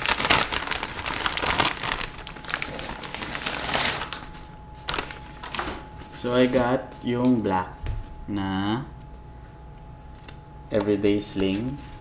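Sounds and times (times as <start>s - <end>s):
plastic bag crinkling: 0.0s - 7.2s.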